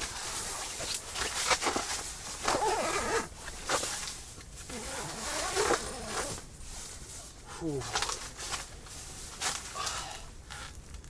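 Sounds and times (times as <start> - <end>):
tent fabric rustling: 0.0 - 10.8
zipper being pulled: 0.3 - 4.1, 4.7 - 6.4.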